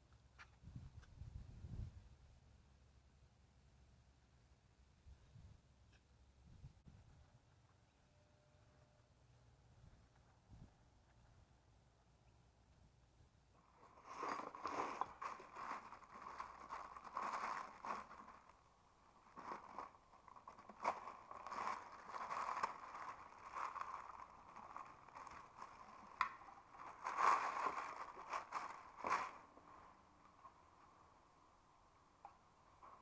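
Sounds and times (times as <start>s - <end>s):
plastic bag crinkling: 13.6s - 30.0s.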